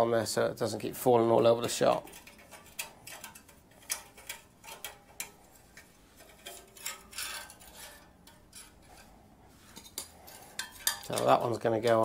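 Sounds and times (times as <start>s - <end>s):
light metal clinks and taps: 9.8s - 12.0s.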